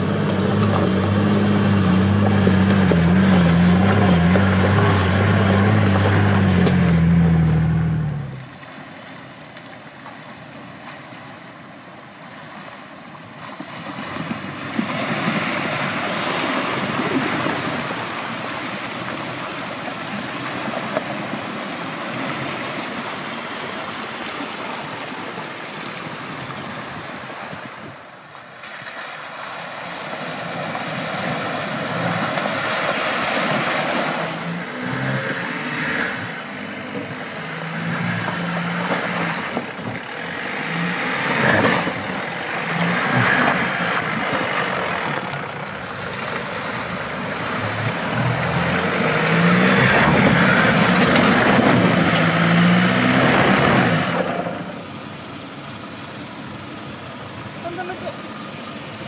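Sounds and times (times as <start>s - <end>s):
engine running hard: 0.0s - 8.6s, 29.8s - 59.0s.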